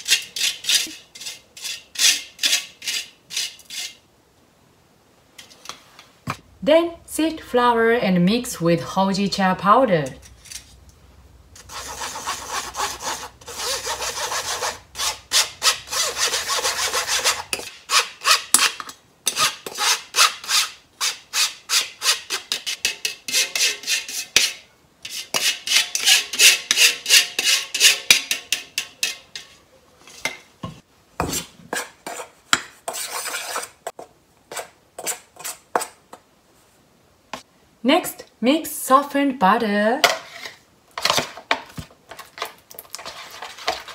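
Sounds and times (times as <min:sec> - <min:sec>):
metal spoon scraping mesh sieve: 0:00.0 - 0:04.0, 0:11.6 - 0:30.4, 0:32.9 - 0:33.9, 0:42.1 - 0:43.9.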